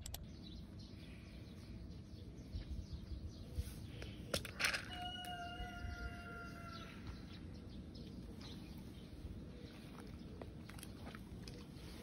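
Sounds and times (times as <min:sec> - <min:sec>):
sharp clicks: 0:00.0 - 0:00.3.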